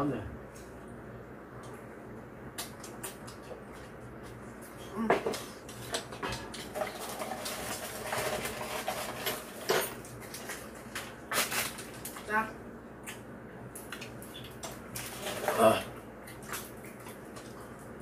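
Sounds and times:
utensils clinking against bowls: 0:05.3 - 0:10.5.

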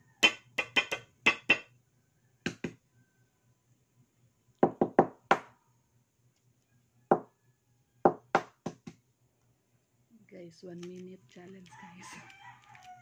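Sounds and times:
egg shell knocking on hard surface: 0:00.2 - 0:01.7, 0:04.6 - 0:05.5, 0:08.1 - 0:08.9.

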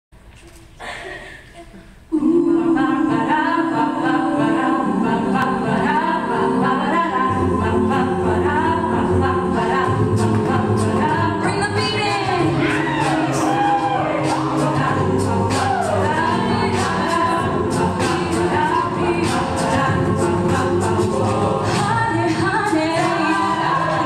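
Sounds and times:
a cappella group singing chords: 0:01.2 - 0:24.0.

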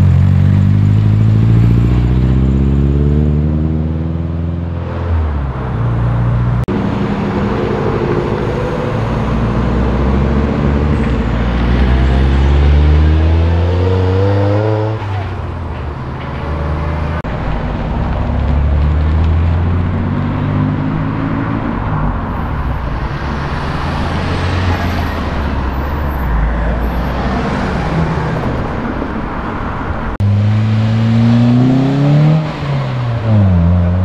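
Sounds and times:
car accelerating with loud exhaust: 0:00.0 - 0:04.8, 0:30.2 - 0:34.0
cars driving past: 0:00.0 - 0:34.0.

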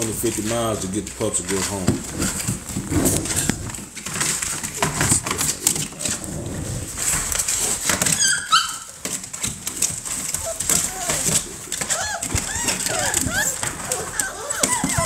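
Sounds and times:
claws scrabbling on wood shavings: 0:00.0 - 0:15.0
puppy yelping: 0:08.0 - 0:09.0, 0:10.1 - 0:15.0.

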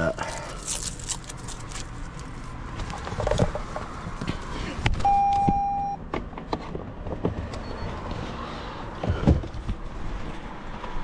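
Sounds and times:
electronic beep: 0:05.0 - 0:06.0.

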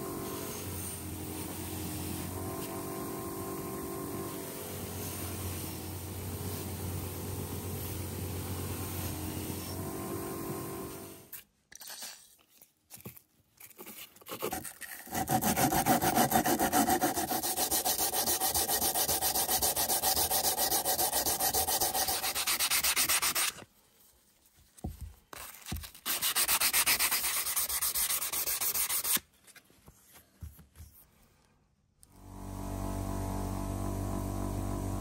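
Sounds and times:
sanding metal: 0:15.0 - 0:23.6, 0:26.0 - 0:29.2.

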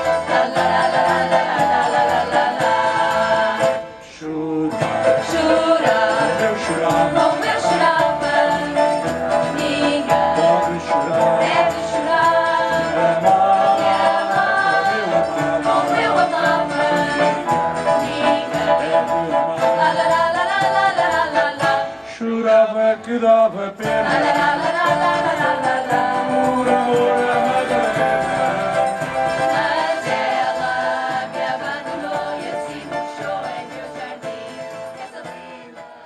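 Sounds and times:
group singing: 0:00.0 - 0:36.0
guitars: 0:00.0 - 0:36.0
keyboard: 0:00.0 - 0:36.0.

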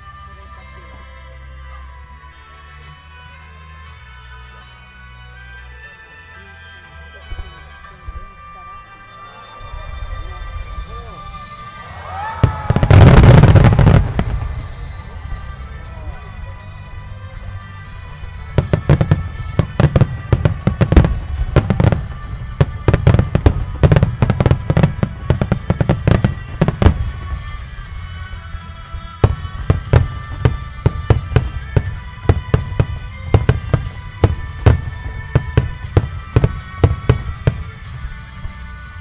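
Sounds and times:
fireworks shells bursting: 0:12.5 - 0:16.0, 0:17.6 - 0:38.7.

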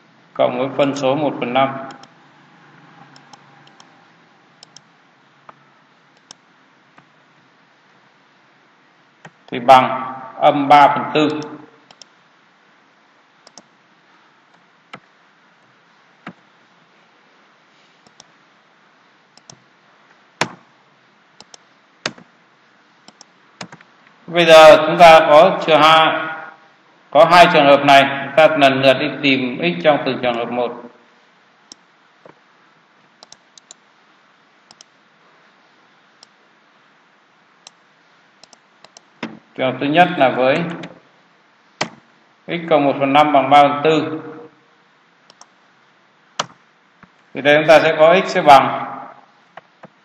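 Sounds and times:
faint steady hiss: 0:00.0 - 0:50.0
computer keyboard and mouse clicks: 0:03.1 - 0:03.9, 0:04.6 - 0:04.9, 0:06.2 - 0:06.4, 0:13.4 - 0:13.7, 0:18.1 - 0:18.3, 0:19.4 - 0:19.6, 0:21.4 - 0:22.3, 0:23.1 - 0:23.9, 0:33.2 - 0:33.8, 0:34.7 - 0:35.0, 0:38.4 - 0:39.4, 0:45.3 - 0:45.6, 0:46.4 - 0:47.2.

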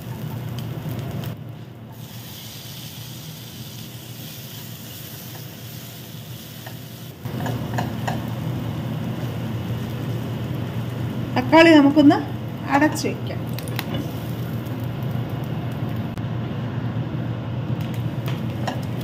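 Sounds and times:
vegetables sizzling in hot oil: 0:00.0 - 0:16.2
spatula tapping pan: 0:06.7 - 0:08.3.

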